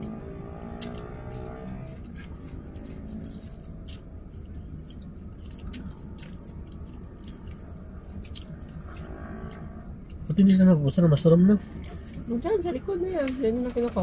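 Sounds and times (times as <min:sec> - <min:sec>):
chewing with wet mouth clicks: 0:00.0 - 0:10.3
low rumble inside car cabin: 0:00.0 - 0:14.0.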